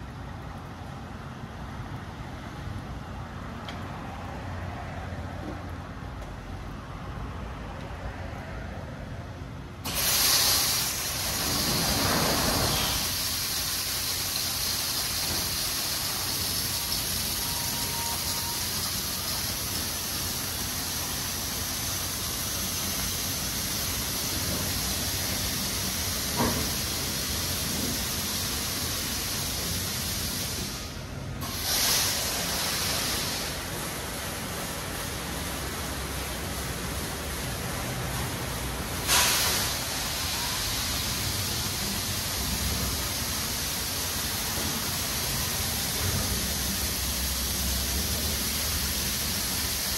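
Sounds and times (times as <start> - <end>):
water jets hissing: 9.8 - 49.9.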